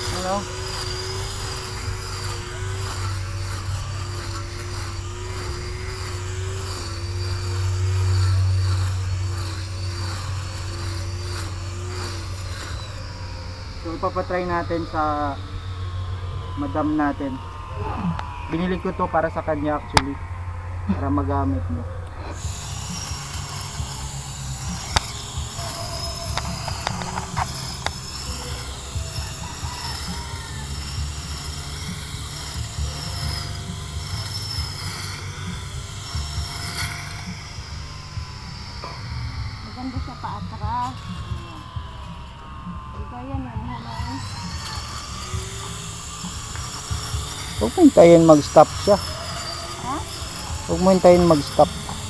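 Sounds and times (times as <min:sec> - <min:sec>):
electric grass trimmer whining: 0:00.0 - 0:52.0
sharp ticks: 0:22.0 - 0:42.2, 0:42.9 - 0:52.0.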